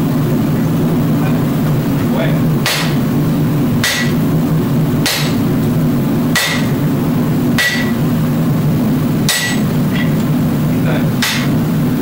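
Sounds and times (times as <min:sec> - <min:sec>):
forge drone: 0:00.0 - 0:12.0
hammer striking metal on anvil: 0:02.6 - 0:03.0, 0:03.8 - 0:04.2, 0:05.0 - 0:05.4, 0:06.3 - 0:06.8, 0:07.6 - 0:08.0, 0:09.3 - 0:10.1, 0:11.2 - 0:11.6.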